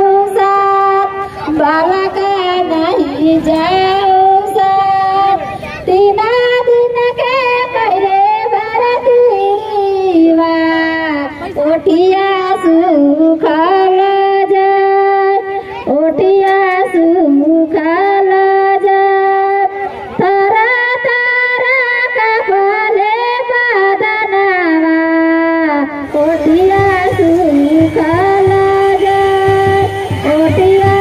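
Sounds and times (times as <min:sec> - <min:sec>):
high voice singing: 0:25.8 - 0:31.0
low drum beat: 0:26.1 - 0:31.0.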